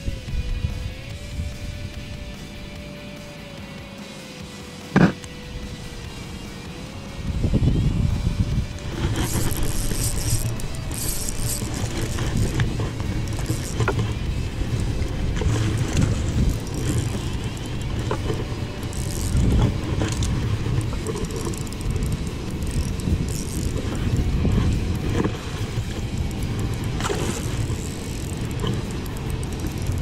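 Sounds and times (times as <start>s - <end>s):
wind buffeting microphone: 6.9s - 30.0s
camera handling clicks and rustles: 8.7s - 14.2s.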